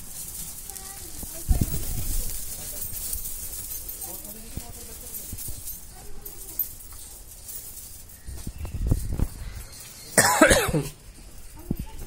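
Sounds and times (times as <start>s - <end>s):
cough-like vocal burst: 10.2s - 10.9s.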